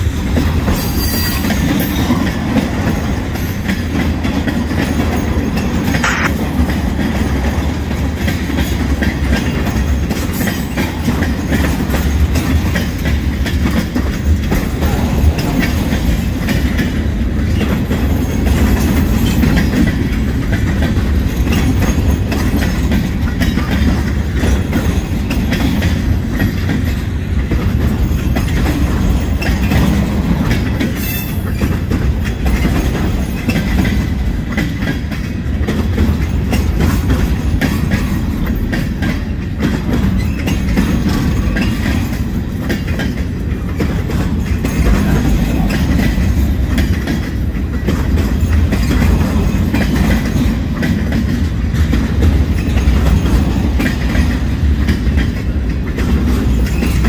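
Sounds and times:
clickety-clack over rail joints: 0.0s - 57.0s
train wheels rumbling on rail: 0.0s - 57.0s.

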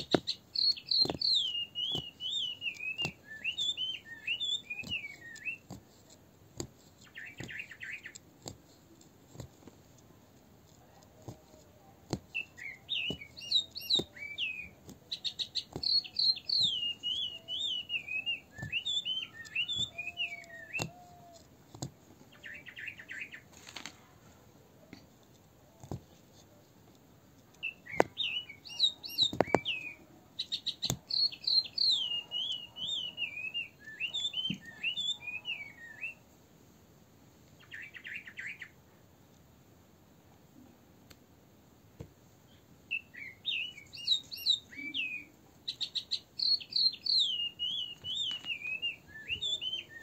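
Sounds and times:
songbird warbling: 12.4s - 21.4s.

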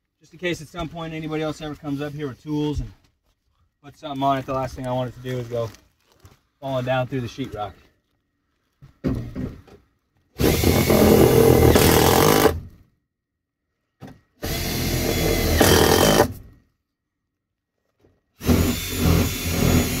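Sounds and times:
cordless drill driving screws: 10.4s - 12.6s, 14.4s - 16.4s, 18.4s - 20.0s.

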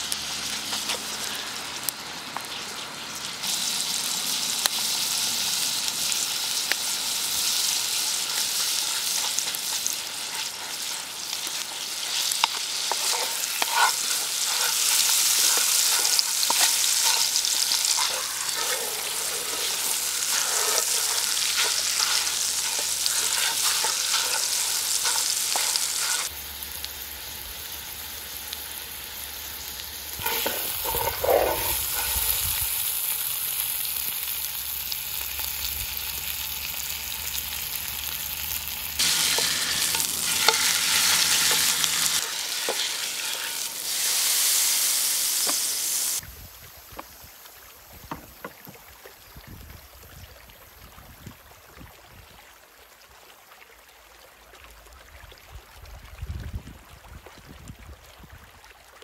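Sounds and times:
steak sizzling in a frying pan: 0.0s - 46.2s
wooden spatula scraping a pan: 7.5s - 26.3s, 30.2s - 32.4s, 39.0s - 46.2s.

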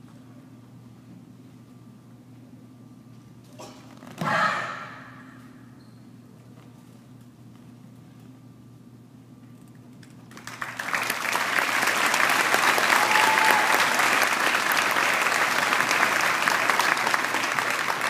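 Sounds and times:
crowd applauding: 10.3s - 18.0s.

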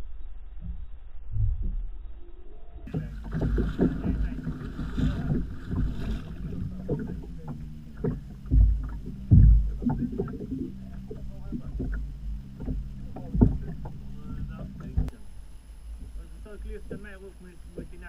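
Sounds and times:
wind rumbling on microphone: 0.0s - 18.0s
fish thrashing and splashing: 2.9s - 15.0s
irregular knocks: 2.9s - 15.2s
heavy low thumps: 2.9s - 18.0s
water sloshing: 2.9s - 18.0s.

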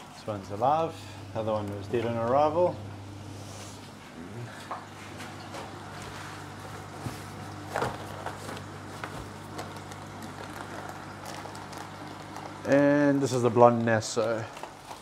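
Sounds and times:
aquarium pumps humming: 0.0s - 15.0s
plastic bags crinkling: 6.4s - 15.0s.

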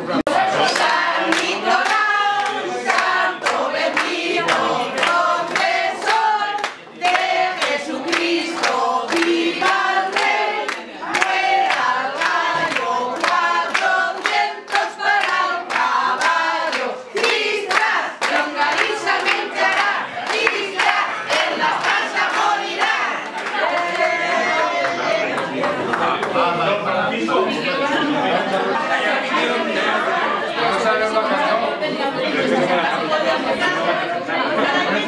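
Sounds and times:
women singing together: 0.0s - 25.4s.

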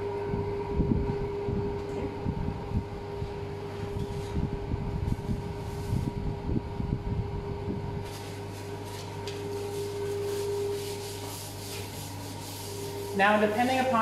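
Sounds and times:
fan humming: 0.0s - 14.0s
gloves crinkling: 8.0s - 13.0s.

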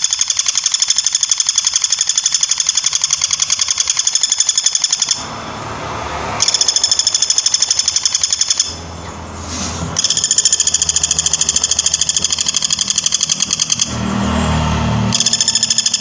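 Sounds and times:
woodpecker rattling call: 0.0s - 5.2s, 6.4s - 8.8s, 10.0s - 13.9s, 15.1s - 16.0s.

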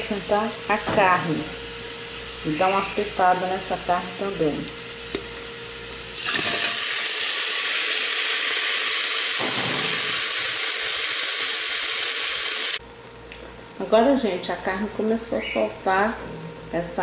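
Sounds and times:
meat sizzling in hot oil: 0.0s - 12.8s.

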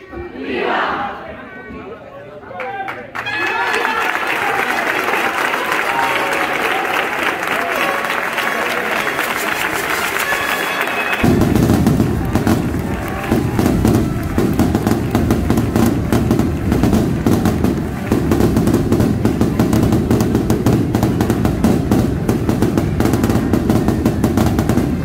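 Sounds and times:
firecrackers crackling: 9.0s - 25.0s.

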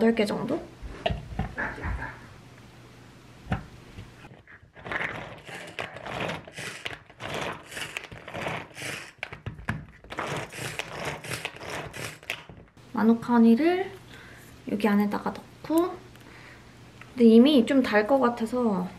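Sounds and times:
pull-cord food chopper whirring: 4.8s - 12.5s.

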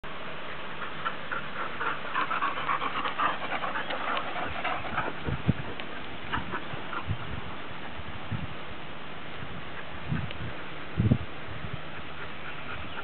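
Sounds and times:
dogs panting: 0.6s - 8.0s, 11.8s - 13.0s.

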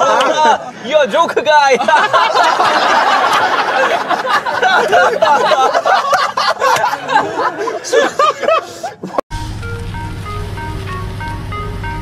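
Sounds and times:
group of people laughing: 0.0s - 9.2s.

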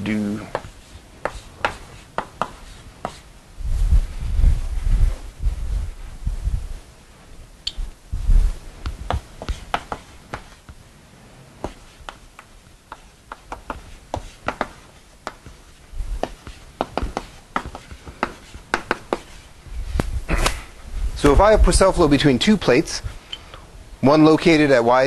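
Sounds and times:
chalk tapping and scraping: 0.1s - 3.3s, 8.8s - 10.8s, 11.6s - 20.1s.

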